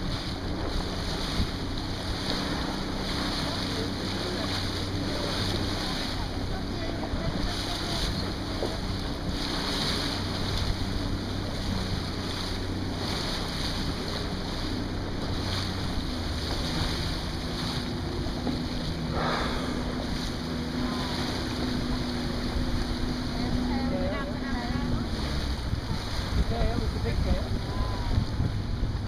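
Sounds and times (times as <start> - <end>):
boat engine hum: 0.0 - 29.0
choppy sea: 0.0 - 29.0
wind gusting on microphone: 4.1 - 29.0
whale blowing: 15.1 - 23.5.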